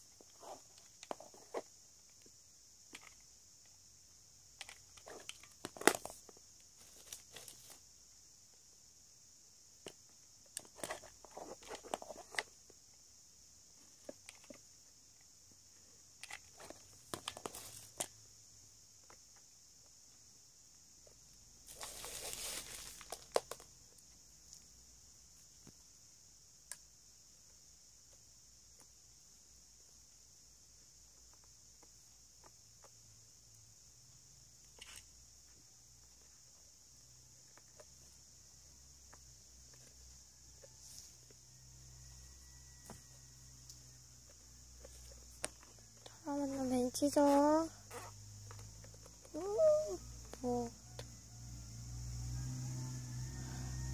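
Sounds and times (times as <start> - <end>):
scraping rustle: 21.7 - 23.2.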